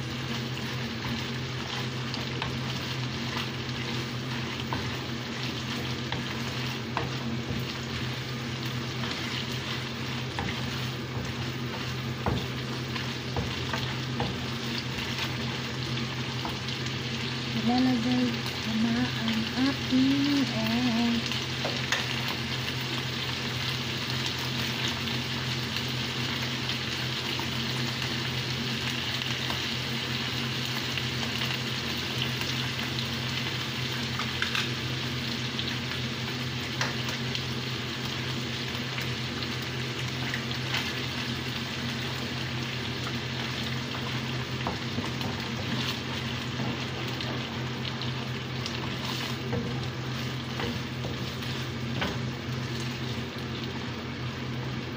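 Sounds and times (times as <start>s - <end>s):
food sizzling in a pan: 0.0s - 54.9s.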